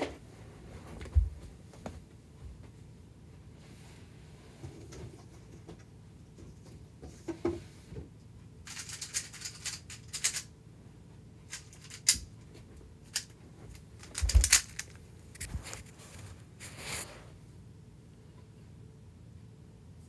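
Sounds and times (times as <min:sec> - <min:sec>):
rustling: 0:11.5 - 0:17.3.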